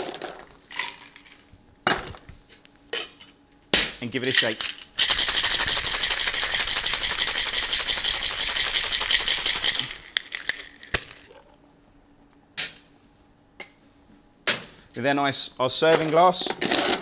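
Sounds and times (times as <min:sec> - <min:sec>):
ice rattling in cocktail shaker: 0:05.0 - 0:11.3.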